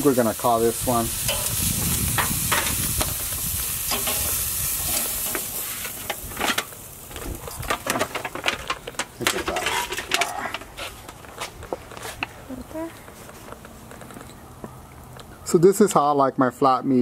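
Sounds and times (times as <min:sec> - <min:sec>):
steak sizzling on a grill: 0:00.0 - 0:10.1
metal tongs clicking on grate: 0:01.3 - 0:01.6, 0:03.9 - 0:05.4
foil pan rattling: 0:07.5 - 0:10.3.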